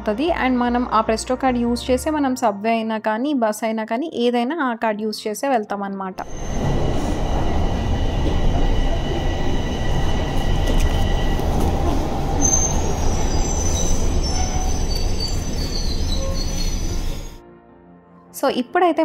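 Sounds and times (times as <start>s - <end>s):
shrill metallic squeal: 6.2s - 17.4s
subway train wheels rumbling: 6.2s - 17.4s.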